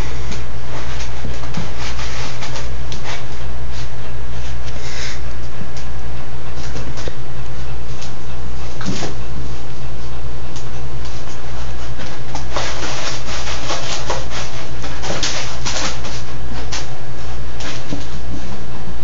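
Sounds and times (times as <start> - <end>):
puppy digging in cat litter: 0.0 - 5.2, 10.5 - 18.3
low hum: 0.0 - 19.0.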